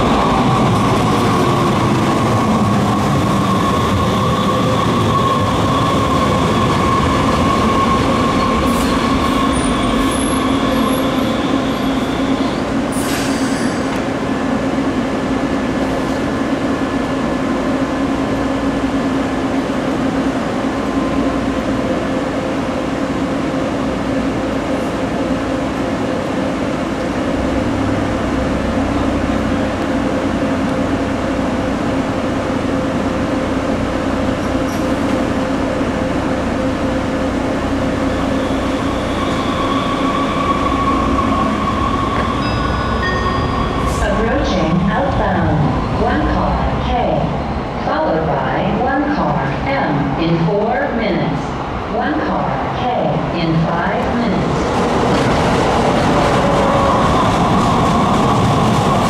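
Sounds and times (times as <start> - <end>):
light-rail train humming: 0.0 - 59.0.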